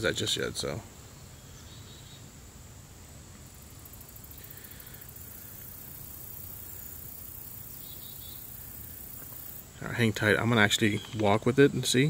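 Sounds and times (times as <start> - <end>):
faint insect buzz: 0.0 - 12.0.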